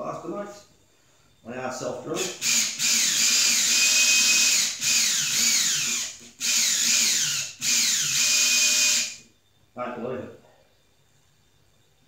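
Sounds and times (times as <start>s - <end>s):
cordless drill whirring: 2.2s - 9.3s.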